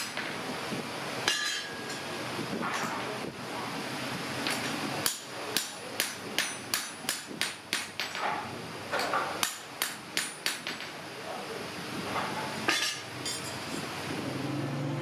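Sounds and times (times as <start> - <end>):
hammer striking metal on anvil: 1.2 - 2.1, 4.6 - 10.9.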